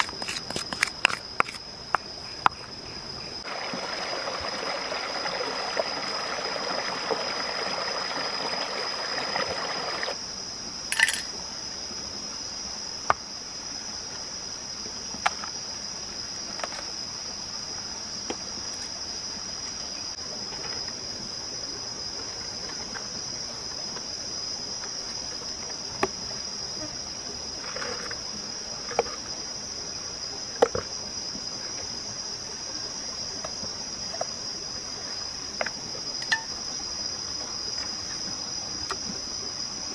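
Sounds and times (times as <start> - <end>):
high-pitched insect chorus: 0.0 - 39.9
stream running over rocks: 3.4 - 10.2.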